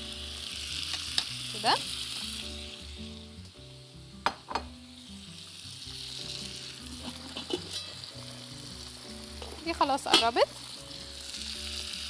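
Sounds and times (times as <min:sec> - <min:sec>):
meat sizzling in oil: 0:00.0 - 0:12.0.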